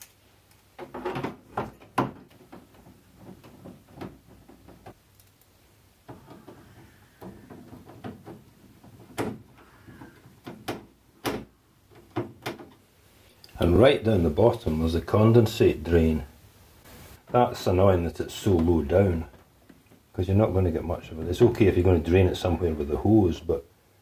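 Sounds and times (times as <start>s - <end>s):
plastic clicks and knocks: 6.1s - 12.8s.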